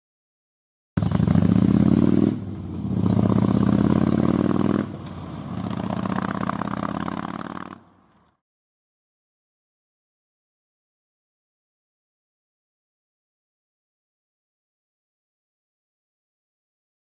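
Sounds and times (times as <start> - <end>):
motorcycle engine accelerating: 1.0 - 8.4.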